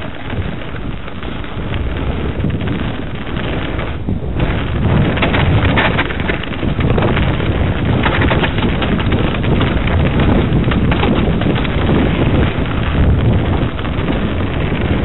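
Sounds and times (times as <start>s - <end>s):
wind buffeting microphone: 0.0s - 15.0s
tyres crunching on stones: 1.8s - 15.0s
bike clicking and knocking: 5.0s - 12.6s.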